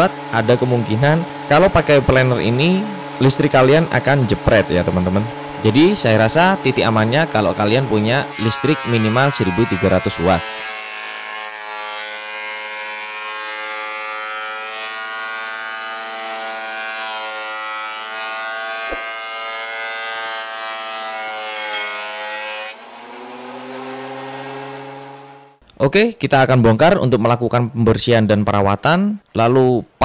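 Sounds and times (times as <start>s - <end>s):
bench planer whining: 0.0s - 25.6s.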